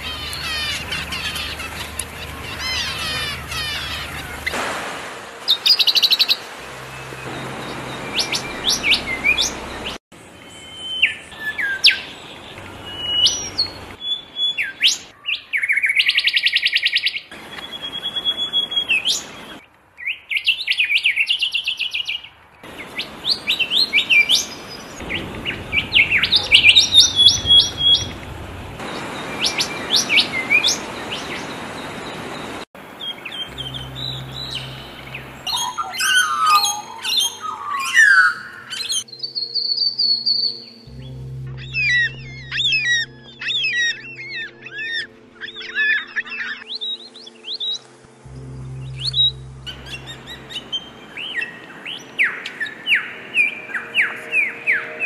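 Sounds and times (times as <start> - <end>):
songbirds singing and calling: 0.0 - 4.6, 5.5 - 55.0.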